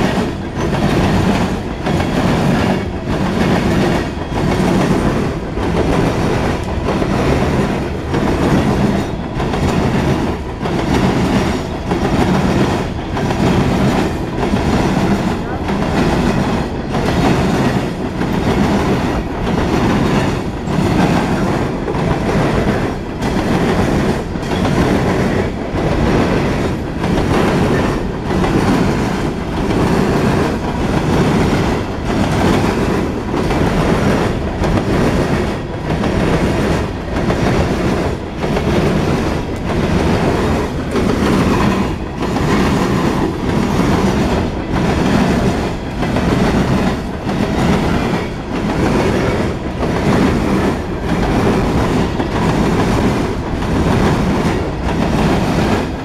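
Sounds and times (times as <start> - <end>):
train wheels clattering on rails: 0.0 - 56.0.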